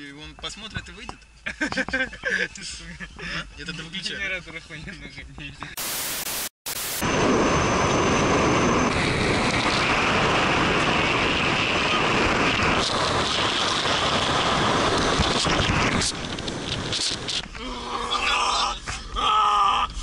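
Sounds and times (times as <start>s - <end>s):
tv static: 5.8s - 7.0s
wind and road noise on microphone: 7.0s - 19.2s.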